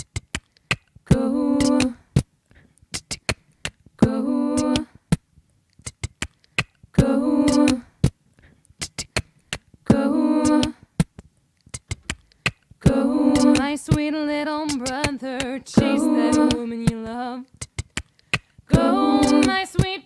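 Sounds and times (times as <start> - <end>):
sharp percussive clicks: 0.0 - 3.8, 4.8 - 6.8, 7.5 - 9.7, 11.0 - 12.7, 14.7 - 15.6
woman singing wordless notes: 1.1 - 2.0, 4.0 - 4.9, 7.0 - 7.9, 9.9 - 10.8, 12.8 - 17.5, 18.7 - 20.0.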